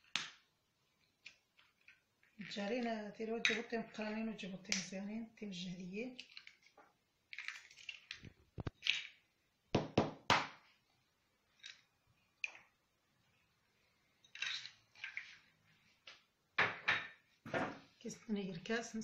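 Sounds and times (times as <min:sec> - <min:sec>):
eggshells tapping and cracking: 0:00.0 - 0:03.7, 0:04.6 - 0:05.0, 0:06.2 - 0:10.6, 0:11.5 - 0:12.8.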